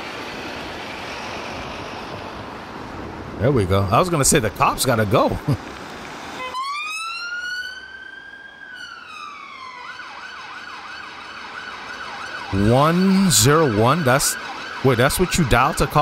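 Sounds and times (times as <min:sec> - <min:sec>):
police siren wailing and yelping: 0:06.4 - 0:16.0
man's voice: 0:12.5 - 0:16.0.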